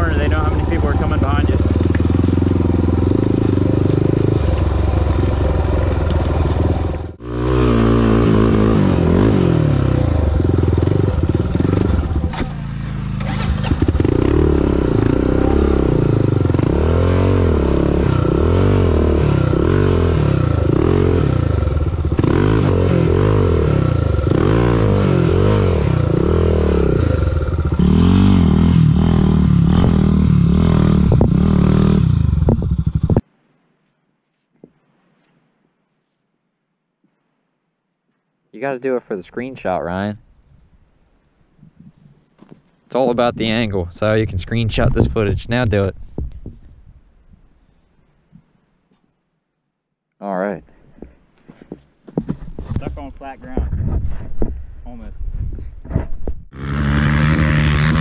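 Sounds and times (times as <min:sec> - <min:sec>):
quad engine revving: 0:00.0 - 0:33.2, 0:56.5 - 0:58.0.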